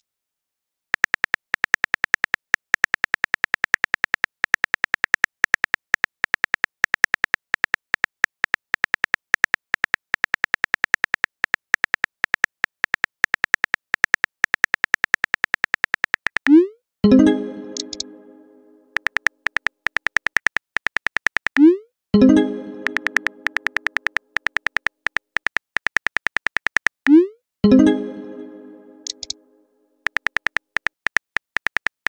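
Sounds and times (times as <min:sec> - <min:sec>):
pitched chime: 0:17.0 - 0:19.0, 0:22.2 - 0:24.0, 0:27.6 - 0:29.7.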